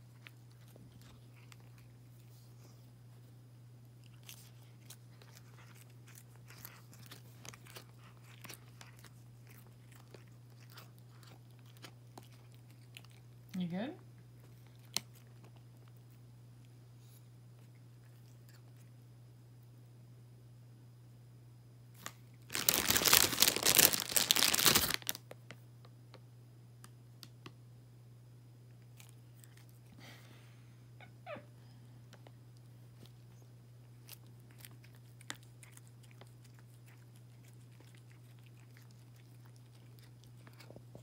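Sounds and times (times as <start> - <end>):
cat chewing leaves: 0.0 - 19.0, 22.0 - 25.2, 28.7 - 30.2, 32.5 - 41.0
loud rustling crunch: 22.5 - 25.2.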